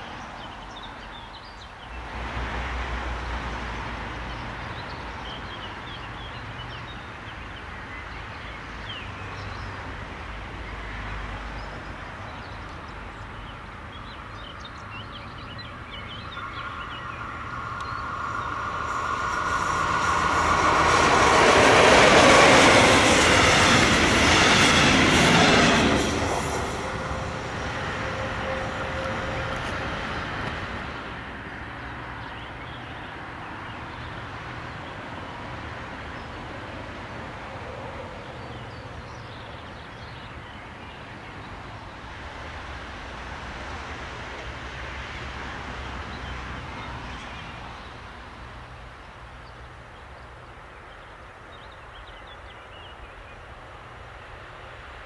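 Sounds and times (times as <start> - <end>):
train passing at speed: 0.0 - 55.0
high ringing of rails: 14.2 - 34.4.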